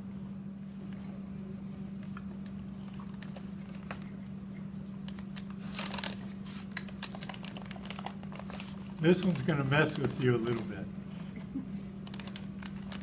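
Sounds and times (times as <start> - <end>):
steady low hum: 0.0 - 13.0
plastic bag crinkling: 5.1 - 10.8, 12.0 - 13.0.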